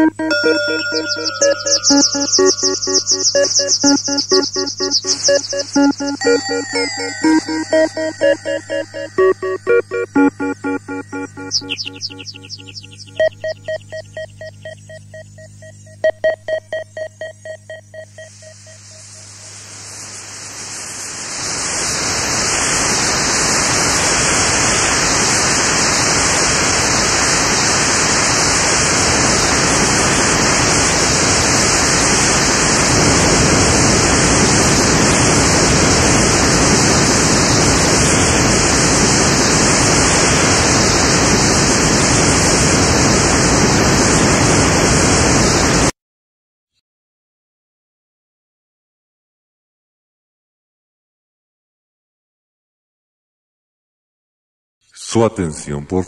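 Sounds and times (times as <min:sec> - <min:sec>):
electronic beeps: 0:00.0 - 0:19.5.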